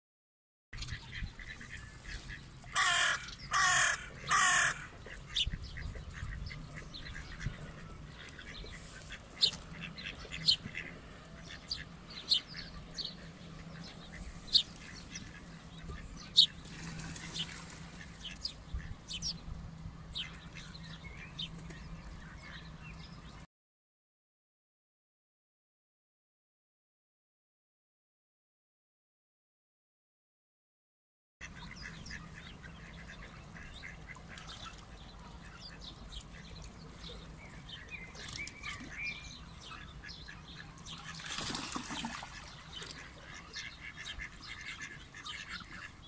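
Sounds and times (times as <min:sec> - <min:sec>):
sparrows chirping: 0:00.8 - 0:23.4, 0:31.4 - 0:46.0
crow cawing: 0:02.7 - 0:04.9.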